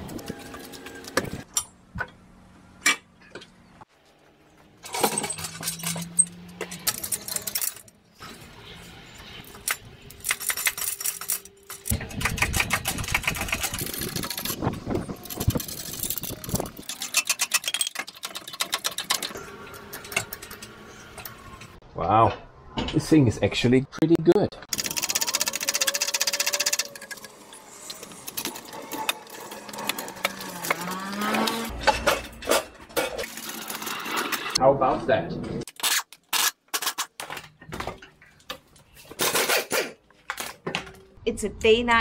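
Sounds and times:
metallic clanks and clicks: 9.6s - 21.8s
rapid ratcheting clicks: 24.7s - 27.3s.

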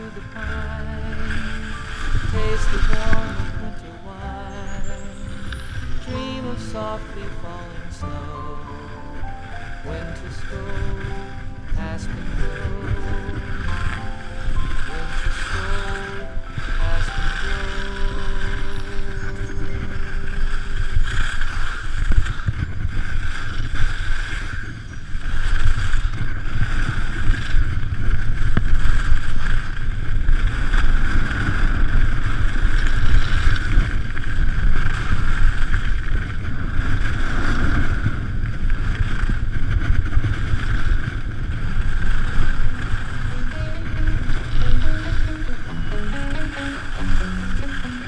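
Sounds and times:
song: 0.0s - 21.1s, 42.4s - 48.0s
skis hissing over snow: 0.0s - 48.0s
wind buffeting microphone: 0.0s - 48.0s.

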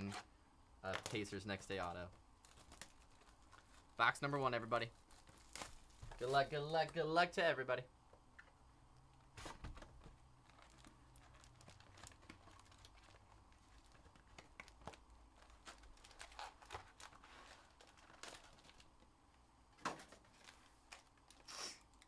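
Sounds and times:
foil packs crinkling: 0.8s - 6.8s, 10.4s - 19.1s.

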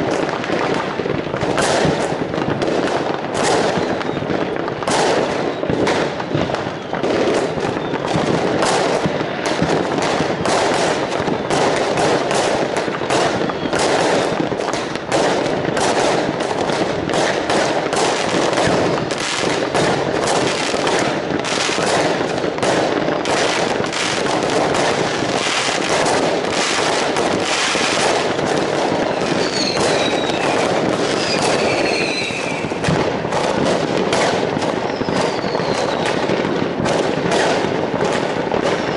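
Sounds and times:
fireworks bangs and crackles: 0.0s - 38.9s
firework whistles: 3.4s - 14.8s, 17.2s - 36.4s, 38.6s - 38.9s.

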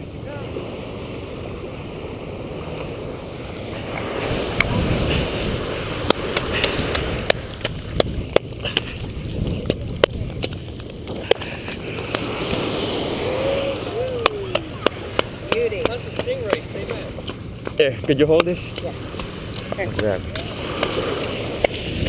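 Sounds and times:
surf washing on beach: 0.0s - 22.0s
wind noise on microphone: 3.7s - 15.4s, 20.2s - 22.0s.

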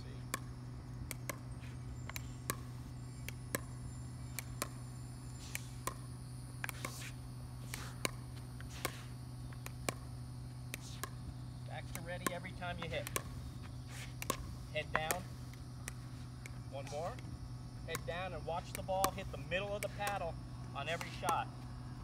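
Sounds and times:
ball bouncing on court: 0.3s - 4.8s, 5.5s - 7.1s, 7.7s - 9.0s, 9.6s - 10.1s, 10.7s - 13.4s, 14.2s - 17.2s, 17.8s - 21.5s
plastic ball tapped off paddles: 0.3s - 4.8s, 5.4s - 10.1s, 10.7s - 13.4s, 14.2s - 21.5s.

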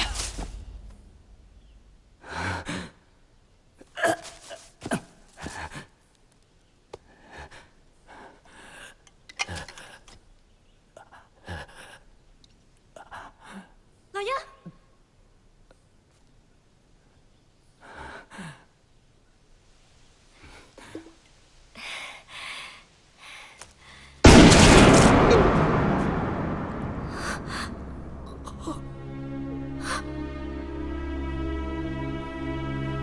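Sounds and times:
film score impact hit: 0.0s - 2.2s, 24.2s - 30.7s
tense music: 0.0s - 3.2s, 24.2s - 33.0s.

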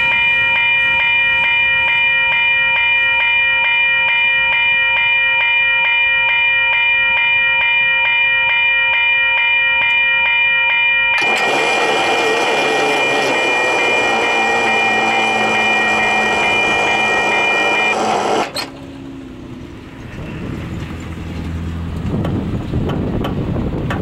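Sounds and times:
high-pitched ringing tones: 0.0s - 18.7s
freight train rolling on rails: 11.2s - 24.0s.

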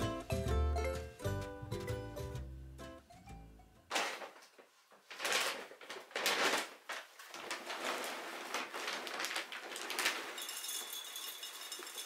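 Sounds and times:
dog food bag crinkling: 3.9s - 12.0s.

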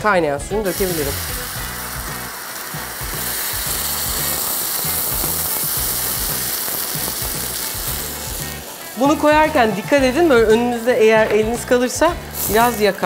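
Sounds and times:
butter sizzling: 0.5s - 13.0s
boiling water bubbling and hissing: 0.7s - 9.0s.

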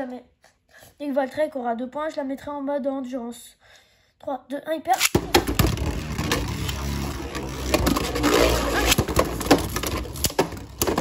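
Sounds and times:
sharp clicks and knocks: 5.0s - 11.0s
spinning tops grinding whir: 5.0s - 11.0s.

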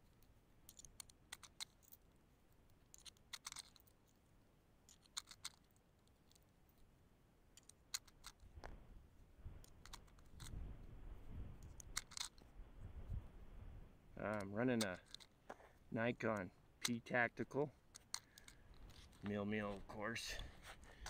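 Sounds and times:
faint clicks from handling gear: 9.6s - 12.5s, 14.2s - 21.0s
wind rumble on microphone: 10.3s - 11.9s, 12.5s - 14.0s.

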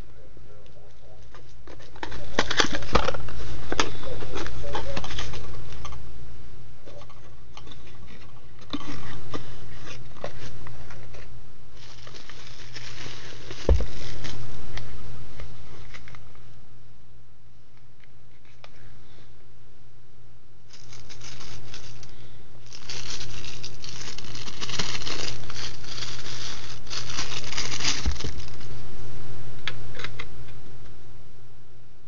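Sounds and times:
bubble wrap crinkling: 0.8s - 6.0s, 6.9s - 16.3s, 20.7s - 28.8s.

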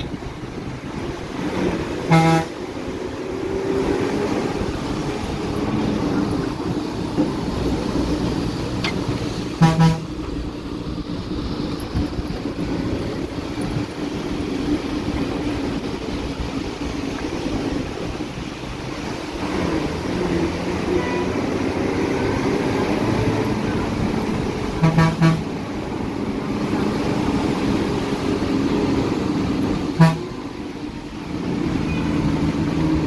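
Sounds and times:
bus engine running: 0.0s - 33.0s
horn toot: 2.0s - 2.6s, 9.6s - 10.1s, 24.8s - 25.5s, 30.0s - 30.3s.

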